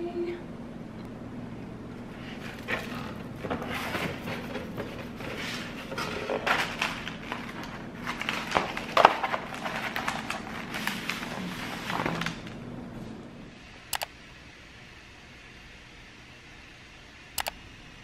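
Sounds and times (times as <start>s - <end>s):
cardboard box scraping and rustling: 2.3s - 12.4s.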